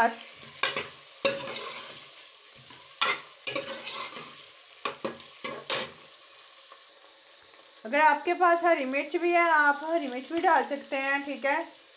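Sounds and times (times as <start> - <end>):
vegetables sizzling in oil: 0.0 - 11.9
metal spoon scraping pot: 0.6 - 2.1, 2.7 - 4.4.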